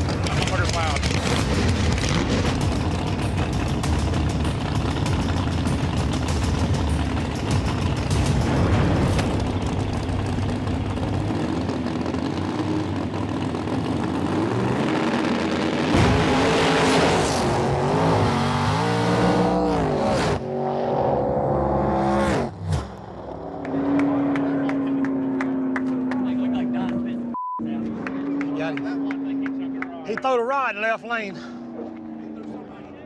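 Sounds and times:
race car engines at full throttle: 0:00.0 - 0:33.0
steady engine drone: 0:00.0 - 0:33.0.

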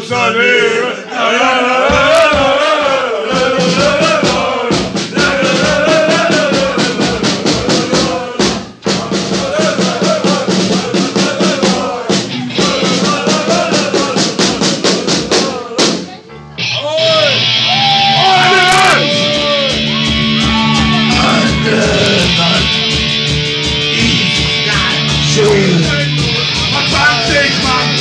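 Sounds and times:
fast drum beat: 0:01.8 - 0:16.2, 0:17.0 - 0:28.0
electric guitar: 0:16.5 - 0:28.0
man singing loudly: 0:18.1 - 0:22.9, 0:23.8 - 0:28.0.

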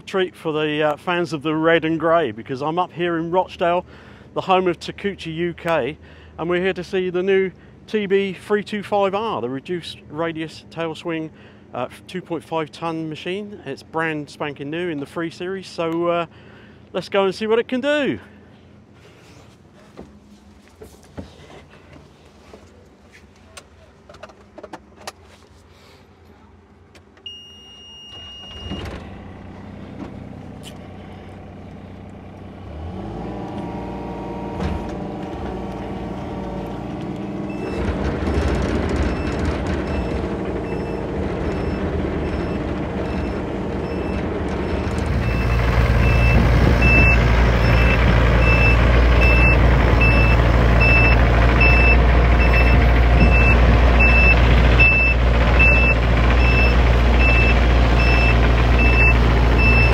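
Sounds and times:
short beep from cab: 0:27.2 - 0:28.9, 0:41.6 - 0:59.9
travel alarm beeping: 0:27.2 - 0:28.9, 0:39.0 - 0:59.9
diesel engine running and revving: 0:28.6 - 0:59.9.

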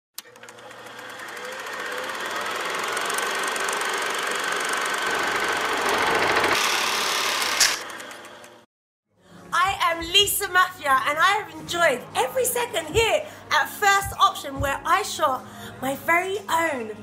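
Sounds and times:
film projector whirring: 0:00.2 - 0:08.6.

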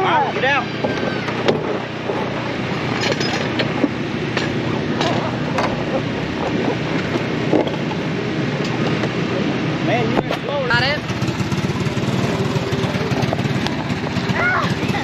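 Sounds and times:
engine humming: 0:00.0 - 0:15.0
clinks and knocks: 0:00.8 - 0:07.9.

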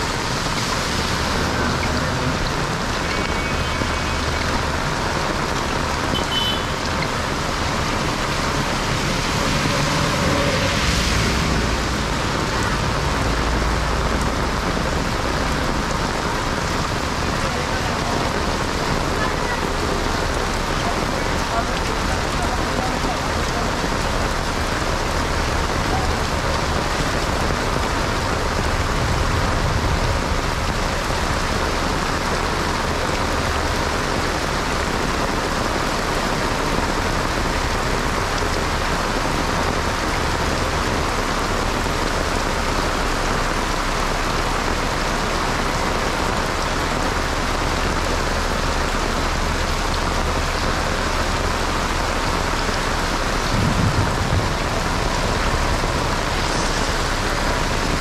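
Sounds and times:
heavy rain on pavement: 0:00.0 - 0:58.0.

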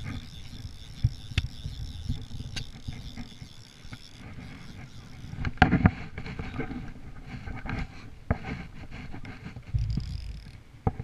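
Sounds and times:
fishing reel drag buzzing: 0:00.0 - 0:06.7, 0:09.8 - 0:10.6.

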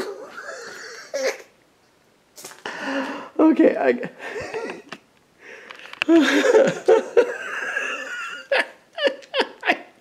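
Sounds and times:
man laughing: 0:00.0 - 0:01.4, 0:04.1 - 0:05.0, 0:06.1 - 0:10.0.

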